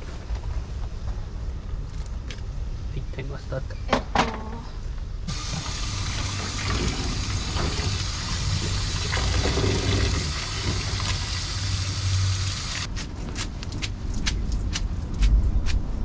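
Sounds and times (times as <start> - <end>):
tap water running into colander: 5.3 - 12.9.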